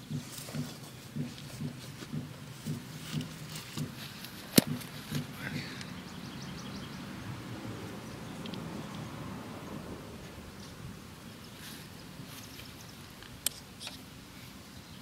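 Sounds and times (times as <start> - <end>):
sharp click: 4.5 - 5.3.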